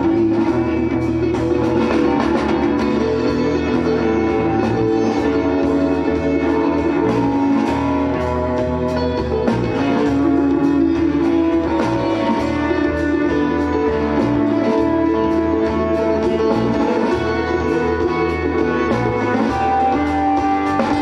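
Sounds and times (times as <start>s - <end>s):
bass line: 0.0s - 21.0s
percussion beat: 0.0s - 21.0s
plucked guitar: 0.0s - 21.0s.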